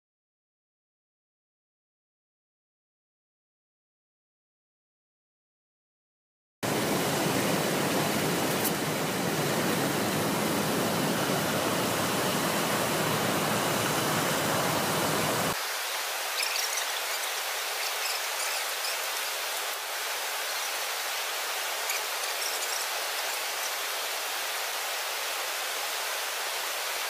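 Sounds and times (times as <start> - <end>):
stream water rushing: 6.7 - 27.0
faint high chirps: 16.3 - 19.7.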